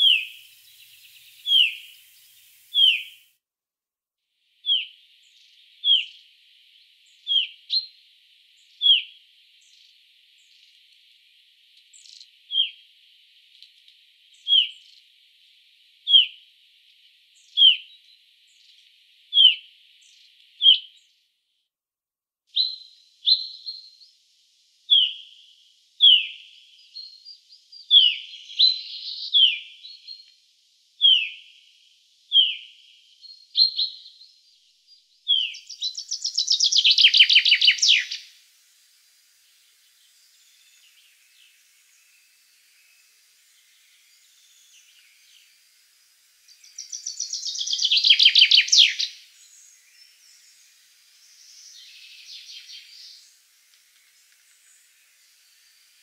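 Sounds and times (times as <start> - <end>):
chaffinch fast song: 35.5 - 56.0.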